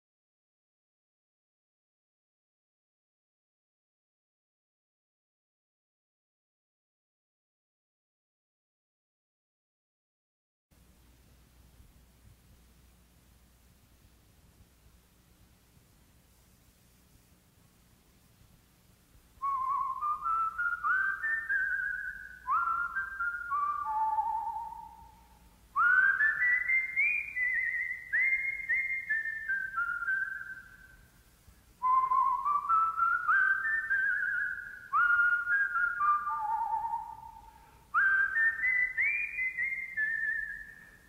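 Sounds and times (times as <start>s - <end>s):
person whistling a tune: 19.4s - 30.9s, 31.8s - 41.0s.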